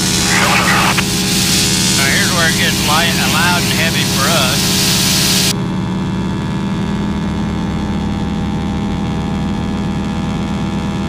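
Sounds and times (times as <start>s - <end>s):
propeller engine droning: 0.0s - 5.5s.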